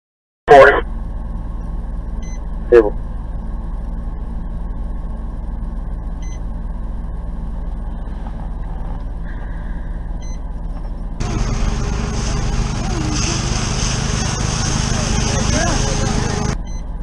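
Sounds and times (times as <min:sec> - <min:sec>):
fire engine idling hum: 0:00.5 - 0:17.0
loud rough noise: 0:11.2 - 0:16.6.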